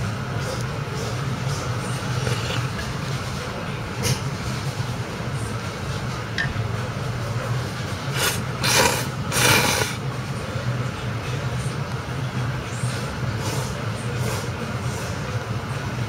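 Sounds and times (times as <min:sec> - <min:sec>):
steady low hum: 0:00.0 - 0:16.0
noodles being slurped: 0:01.8 - 0:03.0, 0:08.1 - 0:10.0.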